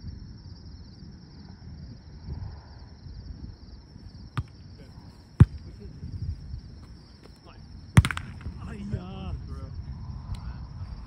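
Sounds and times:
crickets chirring: 0.0s - 11.0s
low wind rumble: 0.0s - 11.0s
volleyball smacks: 8.0s - 8.6s.

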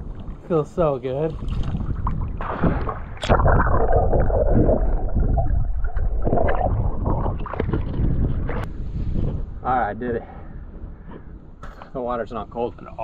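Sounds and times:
underwater sloshing and gurgling: 0.0s - 9.6s.

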